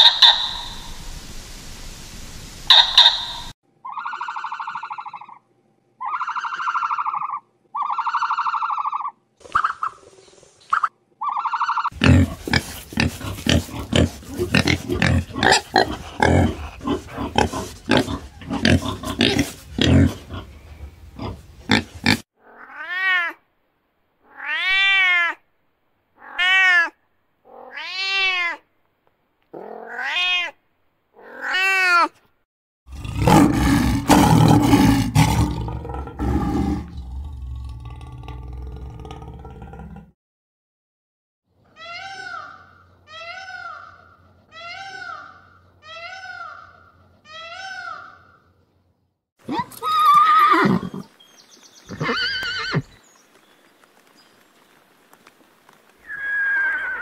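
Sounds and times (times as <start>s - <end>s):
short steady-pitch animal calls: 0.0s - 0.7s, 2.7s - 5.4s
pig grunting: 11.9s - 22.2s, 32.9s - 40.1s
lioness growling and roaring: 12.0s - 22.2s, 32.9s - 40.1s
meow-like calls: 24.2s - 25.4s, 26.2s - 28.6s, 29.6s - 30.6s, 56.0s - 57.0s.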